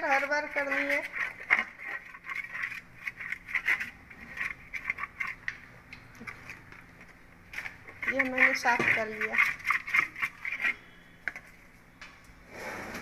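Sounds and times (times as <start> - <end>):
scrubbing perforated metal strainer: 0.0 - 5.5, 7.5 - 11.0.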